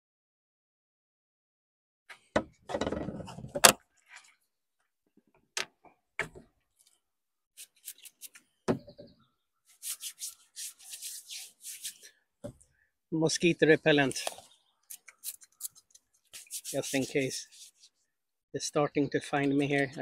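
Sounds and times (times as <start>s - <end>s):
short hissing rubbing strokes: 9.7s - 12.1s, 15.2s - 17.9s
clicks of small objects handled: 14.1s - 16.1s.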